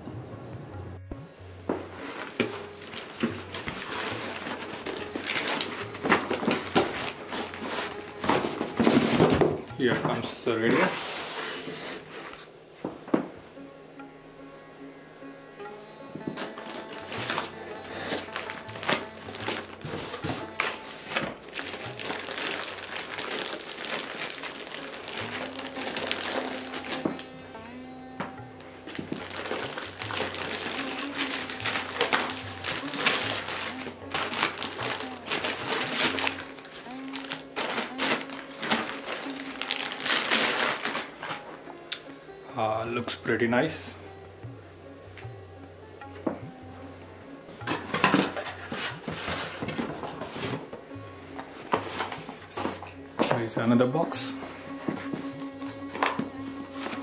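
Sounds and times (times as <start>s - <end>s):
faint background music: 0.0s - 57.0s
cardboard and foam rustling: 1.7s - 13.1s, 16.2s - 27.3s, 28.8s - 41.6s, 47.6s - 57.0s.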